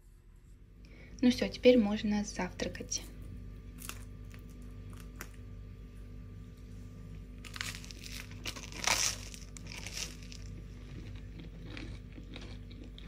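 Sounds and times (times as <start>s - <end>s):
toasted bread crackling: 7.2s - 13.0s.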